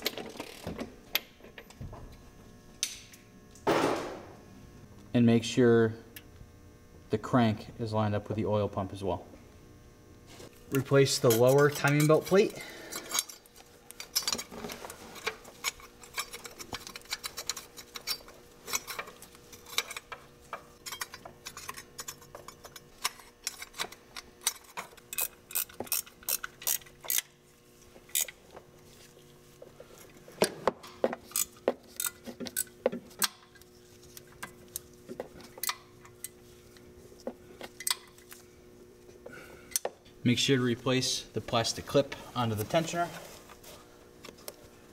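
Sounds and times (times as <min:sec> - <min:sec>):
faint steady hum: 0:00.0 - 0:44.9
hand ratchet clicking: 0:20.9 - 0:27.3.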